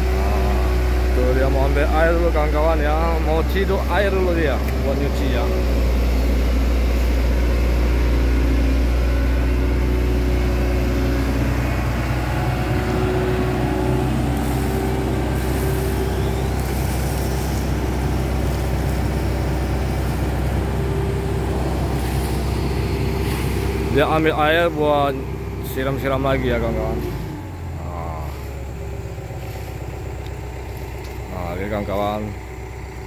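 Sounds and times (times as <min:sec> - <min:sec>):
excavator diesel engine running: 0:00.0 - 0:33.0
steady hydraulic tone: 0:05.5 - 0:25.9.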